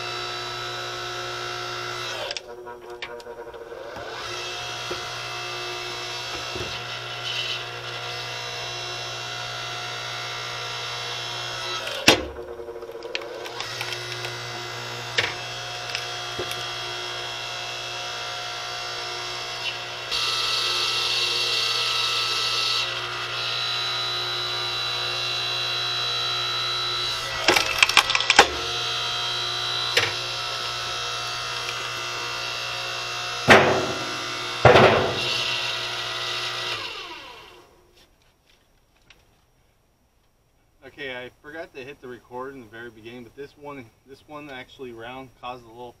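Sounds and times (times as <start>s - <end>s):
log splitter motor humming: 0.0s - 37.8s
wood cracking: 11.5s - 17.4s, 26.6s - 37.3s.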